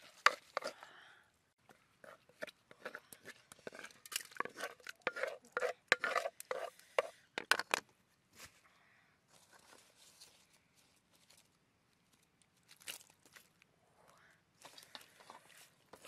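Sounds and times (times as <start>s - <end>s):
food and utensils clattering: 3.6s - 7.8s.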